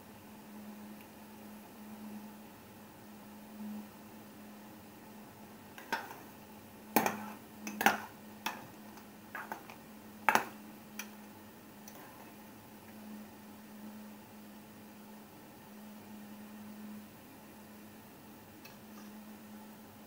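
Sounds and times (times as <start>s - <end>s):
faint low hum: 0.0s - 20.0s
metal spoon knocking on pot: 7.0s - 8.7s, 10.3s - 11.1s.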